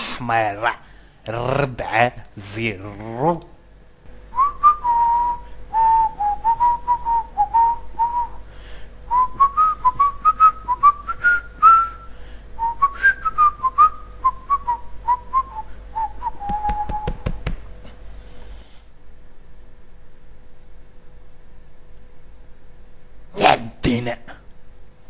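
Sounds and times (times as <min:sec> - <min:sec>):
man whistling a tune: 0:04.4 - 0:08.4, 0:09.1 - 0:17.3.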